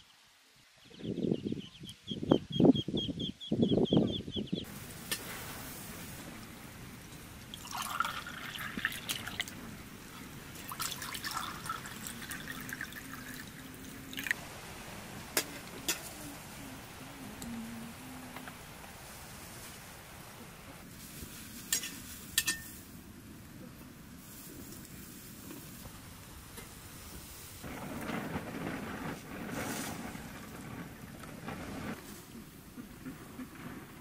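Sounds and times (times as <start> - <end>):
water pouring into glasses: 7.4 - 14.4.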